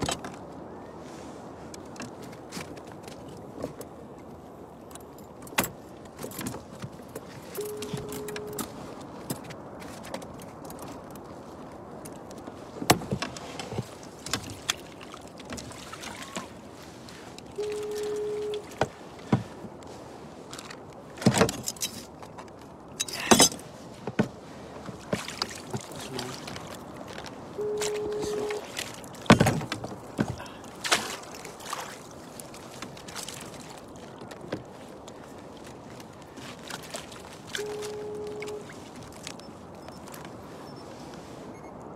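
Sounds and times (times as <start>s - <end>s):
water and handling noise: 0.0s - 41.9s
wind: 0.0s - 41.9s
wet rope hauled into kayak: 12.7s - 24.2s, 24.8s - 41.5s
steady electronic beep: 17.6s - 18.7s, 27.6s - 28.6s.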